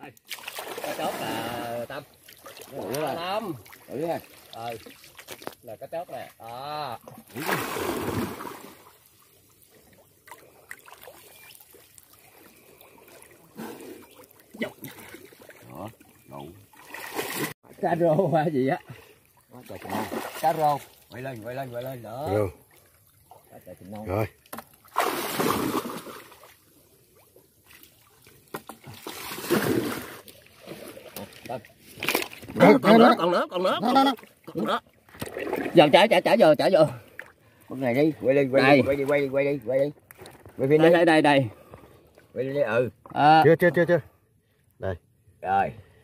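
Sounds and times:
shallow water splashing: 0.3s - 5.6s, 7.0s - 17.6s, 18.8s - 21.8s, 22.5s - 32.6s, 34.1s - 36.0s.

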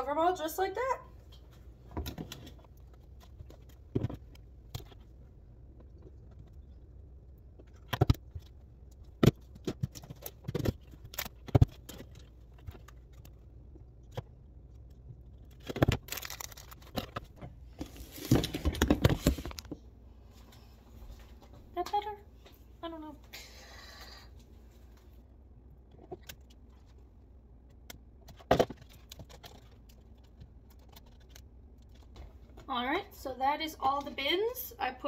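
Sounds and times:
rustling and scraping: 15.3s - 21.7s.

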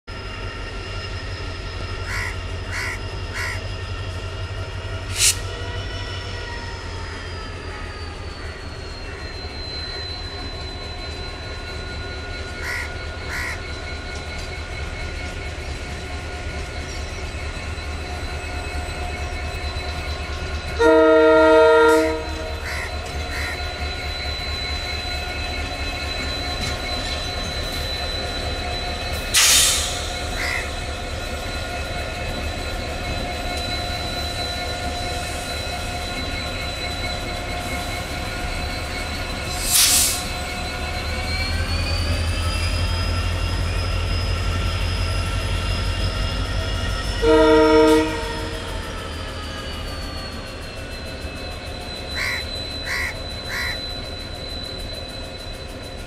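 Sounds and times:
locomotive horn blast: 20.8s - 22.8s, 47.2s - 48.6s.

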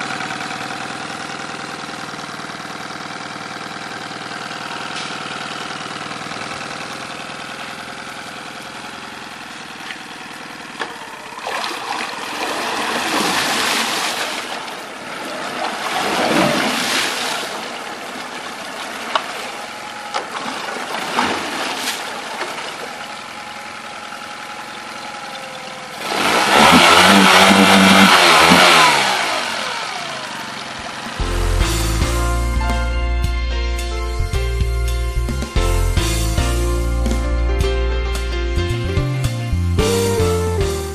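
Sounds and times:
outboard motor revving: 0.0s - 32.5s
propeller churning water: 9.4s - 31.2s.

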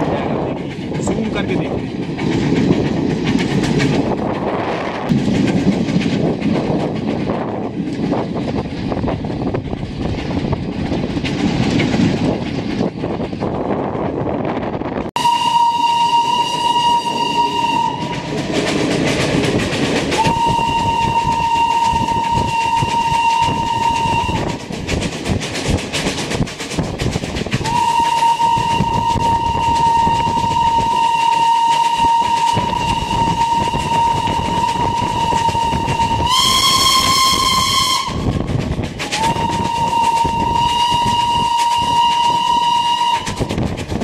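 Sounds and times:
train wheels clacking over rail joints: 0.0s - 44.0s
steam whistle blasts: 15.2s - 18.4s, 20.2s - 24.6s, 27.6s - 38.4s, 39.1s - 43.5s.

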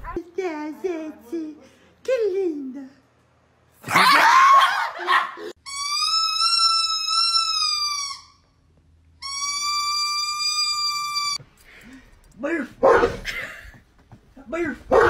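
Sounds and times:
rubber squeeze toy squealing: 5.6s - 8.5s, 9.2s - 11.4s.

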